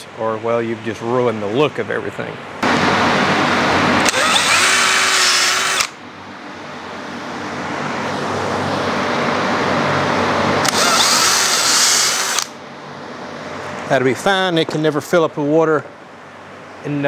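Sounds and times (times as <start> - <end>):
cordless drill boring holes: 4.0 - 6.0, 10.6 - 12.6.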